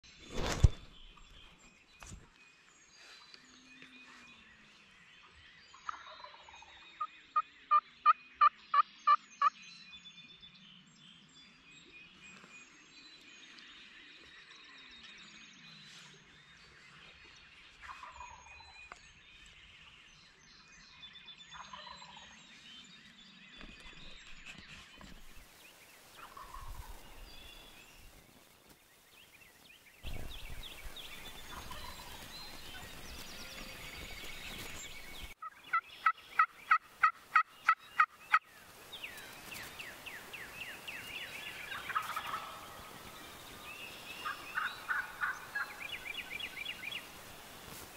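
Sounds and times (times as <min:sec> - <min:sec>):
songbirds chirping: 0:00.0 - 0:47.9
turkey gobbling: 0:31.5 - 0:32.3, 0:36.4 - 0:38.1, 0:41.7 - 0:42.7, 0:44.2 - 0:45.8.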